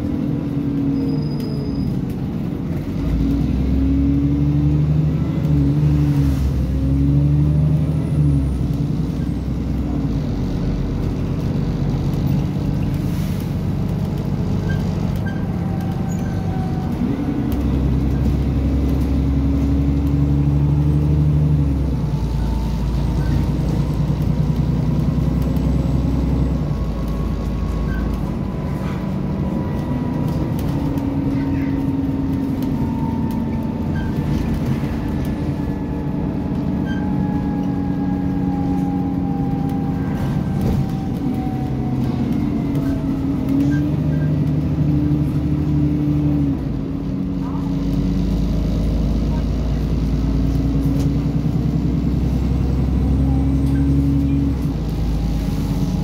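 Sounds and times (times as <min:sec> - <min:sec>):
bus engine: 0:00.0 - 0:56.0
road rumble: 0:00.0 - 0:56.0.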